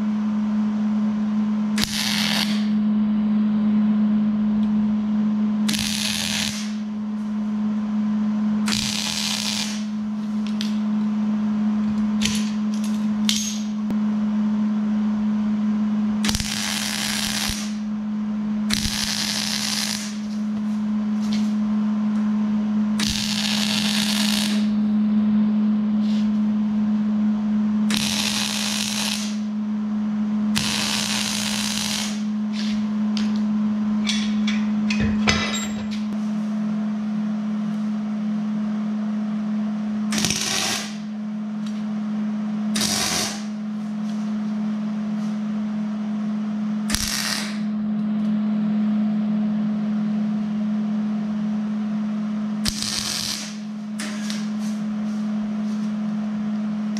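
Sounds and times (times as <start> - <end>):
steady low hum: 0.0 - 56.9
welding arc crackling and sizzling: 1.8 - 2.8, 5.7 - 6.9, 8.7 - 10.8, 16.2 - 17.9, 18.7 - 20.4, 23.0 - 24.8, 27.9 - 29.5, 30.6 - 32.8, 40.2 - 41.0, 42.8 - 43.6, 46.9 - 47.6, 52.6 - 54.5.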